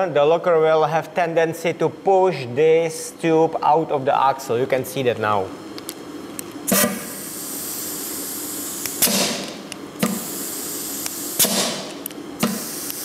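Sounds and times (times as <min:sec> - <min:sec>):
compressed air hissing: 0:06.7 - 0:13.0.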